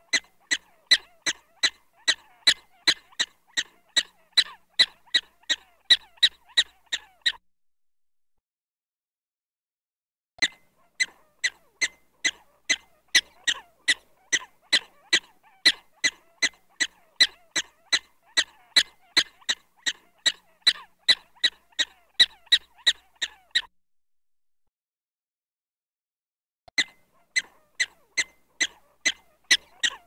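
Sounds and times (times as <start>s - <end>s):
prairie dog alarm barks: 27.1s - 30.0s.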